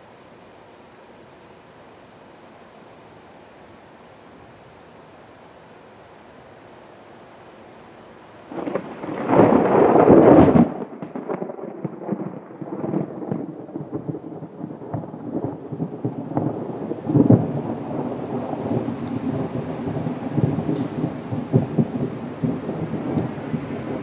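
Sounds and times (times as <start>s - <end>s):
thunder clap and rumble: 8.5s - 24.0s.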